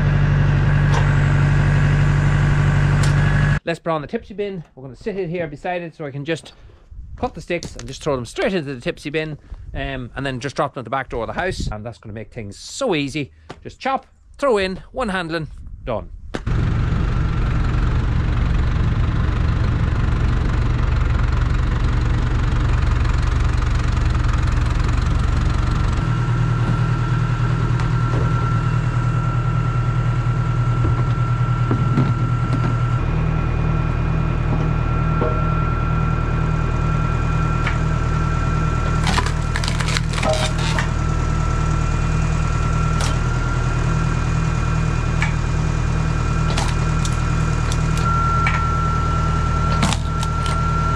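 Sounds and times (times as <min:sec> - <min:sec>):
tractor engine running: 0:00.0 - 0:05.5, 0:16.4 - 0:50.9
thin steady whine: 0:19.3 - 0:50.9.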